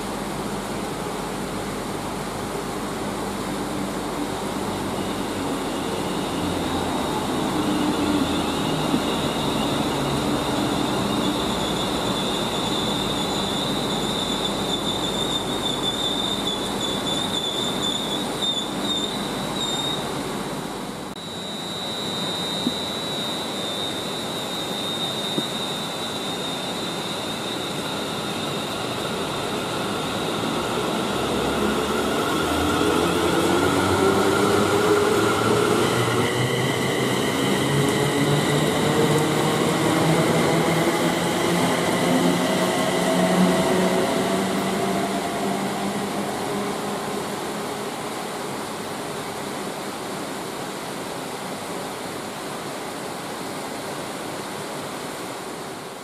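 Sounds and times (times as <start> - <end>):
train wheels rumbling: 0.0 - 20.2, 22.6 - 49.5
rising whine: 3.1 - 18.5, 21.1 - 48.6
train wheel squeal: 4.2 - 20.4, 21.2 - 49.4.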